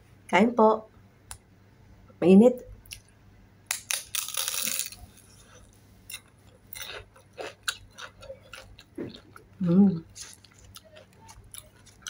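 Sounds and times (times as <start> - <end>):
crunchy bite: 3.7 - 12.0
person chewing: 4.0 - 12.0.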